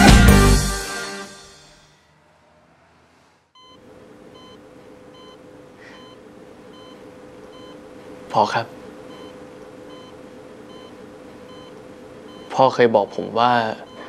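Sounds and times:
music: 0.0s - 1.9s
low steady hum: 3.6s - 14.0s
patient monitor beeping: 3.6s - 14.0s.

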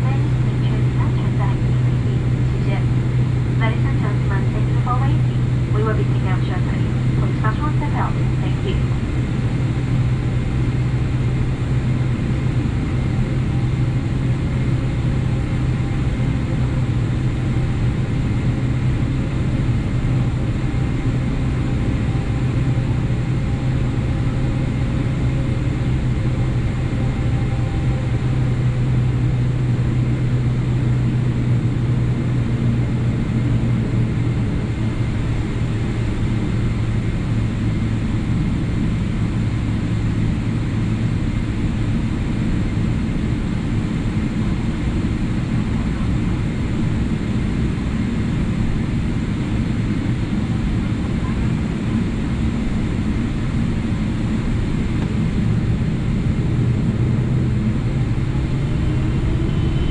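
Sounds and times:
faint high engine whine: 0.0s - 59.9s
jet engines humming: 0.0s - 59.9s.

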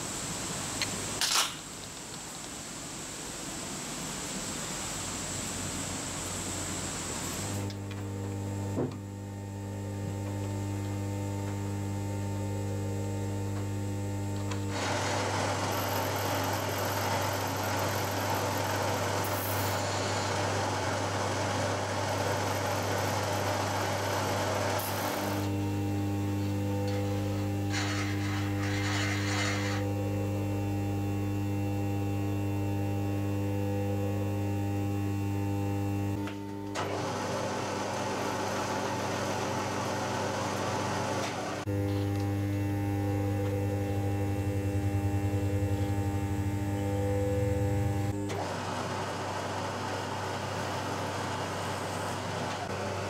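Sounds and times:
drill motor humming: 7.6s - 36.4s, 41.6s - 48.5s
drill cutting metal hiss: 14.7s - 25.5s, 26.4s - 30.0s.

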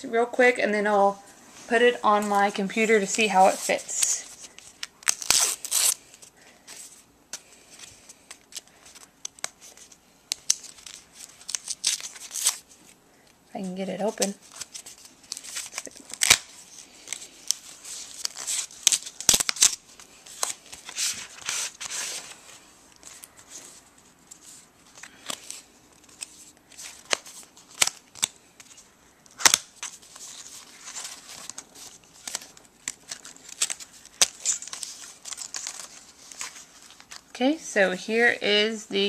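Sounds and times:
paper and plastic rustling: 13.9s - 37.3s.

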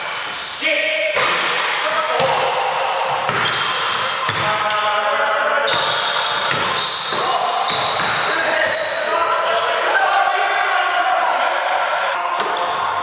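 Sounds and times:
players calling out: 1.0s - 13.0s
sneakers squeaking on court: 5.2s - 9.9s
basketball bouncing on wood floor: 5.7s - 8.3s.

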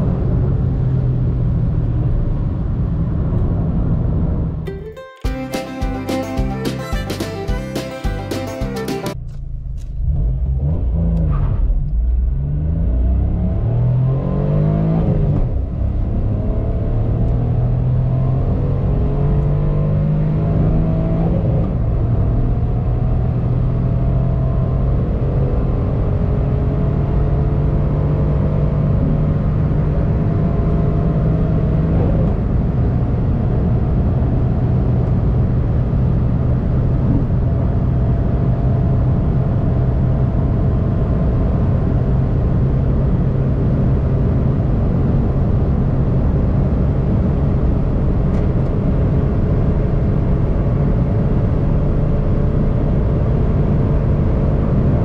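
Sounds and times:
car engine accelerating hard: 9.3s - 55.0s.

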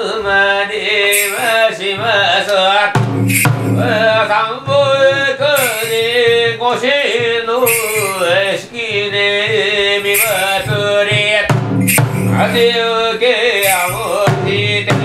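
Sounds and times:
metallic jingling: 1.1s - 1.7s, 3.2s - 4.3s, 5.5s - 6.4s, 7.6s - 8.7s, 9.9s - 12.8s, 13.6s - 14.5s
drum strokes: 2.9s - 12.9s, 13.6s - 15.0s
man chanting in held notes: 3.7s - 15.0s.

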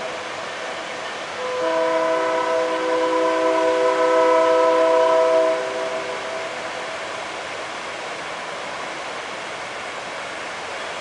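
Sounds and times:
rumble of passing train: 0.0s - 11.0s
locomotive air horn blast: 1.4s - 6.6s.

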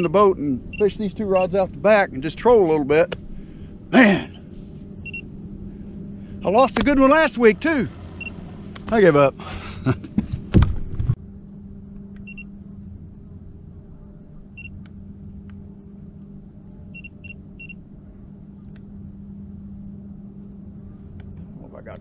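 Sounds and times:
boat motor humming: 0.0s - 22.0s.

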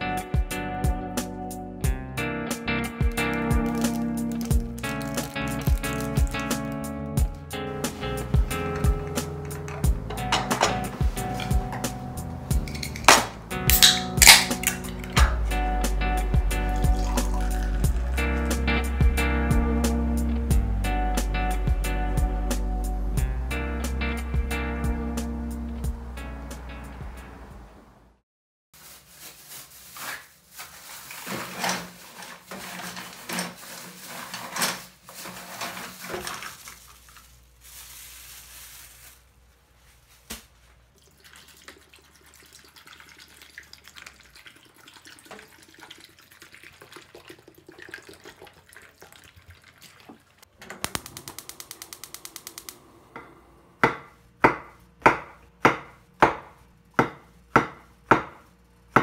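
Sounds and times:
clattering and splashing: 3.2s - 6.8s, 7.9s - 11.9s, 12.5s - 15.6s, 16.7s - 18.6s, 30.6s - 38.1s, 40.9s - 51.9s
water pouring into a pot: 3.5s - 6.6s, 16.6s - 18.6s, 35.3s - 38.1s, 40.9s - 52.7s
knife chopping on wooden board: 53.8s - 59.0s.

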